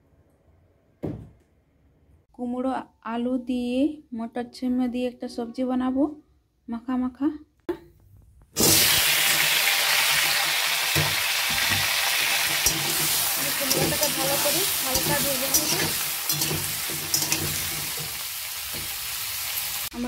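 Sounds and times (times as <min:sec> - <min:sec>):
metal spatula scraping pan: 0:08.6 - 0:18.2
food sizzling in hot oil: 0:08.6 - 0:20.0.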